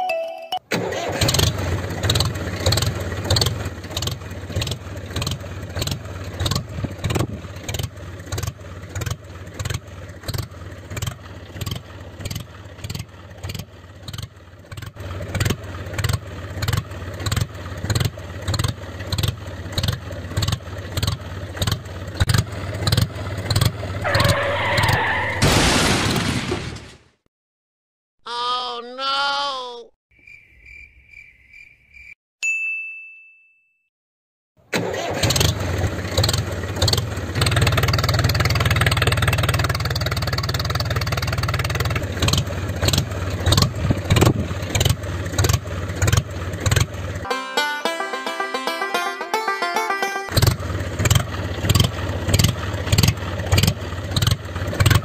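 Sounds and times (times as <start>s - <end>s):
higher tone: 47.3s - 50.9s.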